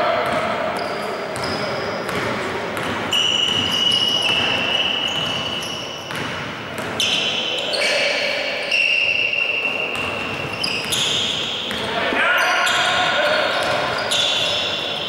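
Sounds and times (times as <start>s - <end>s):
basketball bouncing: 0.2s - 0.5s, 1.4s - 4.6s, 6.1s - 7.1s, 10.0s - 11.8s
sneakers squeaking: 0.2s - 15.0s.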